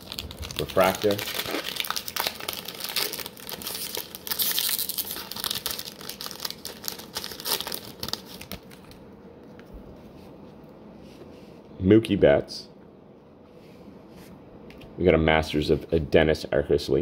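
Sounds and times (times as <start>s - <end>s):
wrapper tearing and crinkling: 0.0s - 9.0s.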